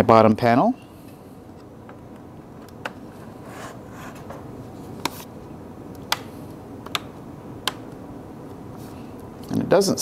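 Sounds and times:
laptop case rubbing: 0:03.1 - 0:04.3
plastic clips snapping into place: 0:06.0 - 0:08.0.

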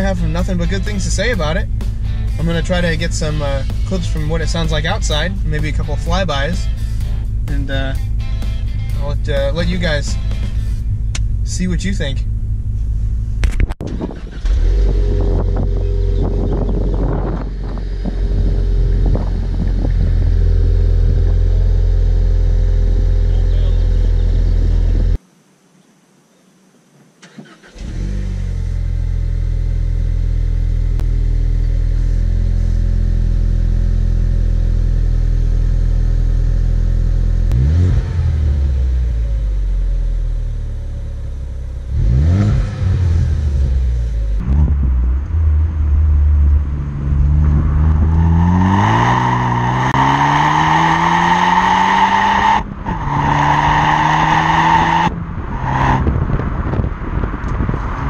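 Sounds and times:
car engine idling and revving: 0:00.0 - 0:25.2, 0:27.5 - 0:58.0.

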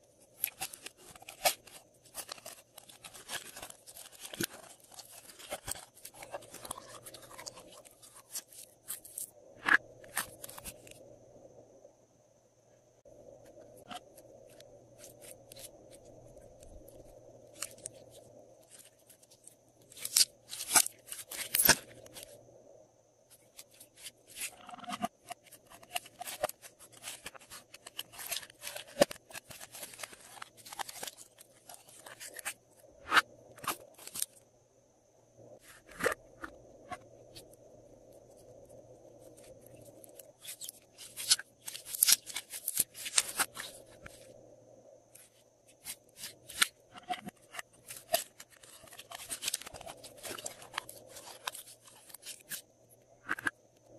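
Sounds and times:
plastic cup crinkling: 0:00.4 - 0:09.3, 0:23.6 - 0:32.6, 0:40.0 - 0:44.3, 0:45.9 - 0:52.6.

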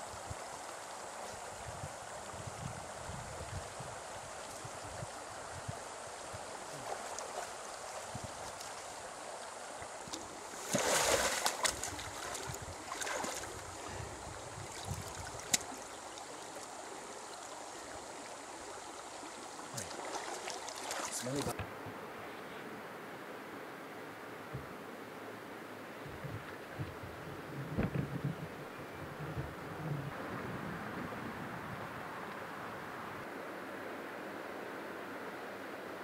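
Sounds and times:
creek water running: 0:00.0 - 0:22.8
splashing in water: 0:10.1 - 0:13.6, 0:19.7 - 0:21.6.

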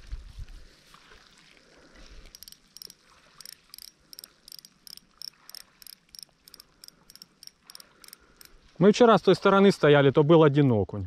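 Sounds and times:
faint insect chirping: 0:02.2 - 0:08.7.

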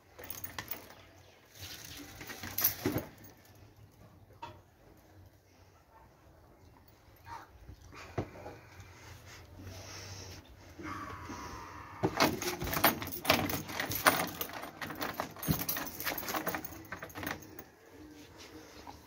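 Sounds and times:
metal chain rattling: 0:00.0 - 0:03.9, 0:12.0 - 0:17.8.

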